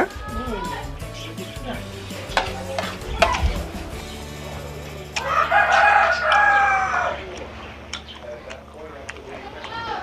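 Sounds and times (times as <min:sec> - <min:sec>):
rooster crowing: 0:05.2 - 0:07.3.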